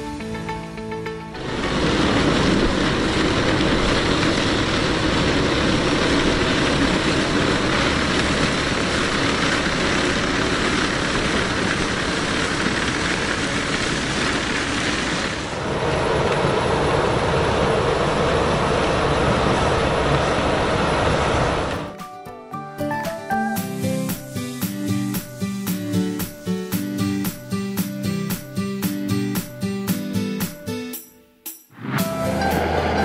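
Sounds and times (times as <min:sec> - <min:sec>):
harvester machinery din: 0:01.4 - 0:14.0
tractor engine running: 0:01.4 - 0:21.9.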